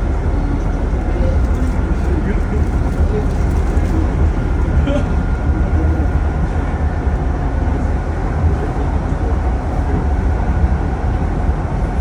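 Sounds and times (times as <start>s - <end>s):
train rumble from inside carriage: 0.0s - 12.0s.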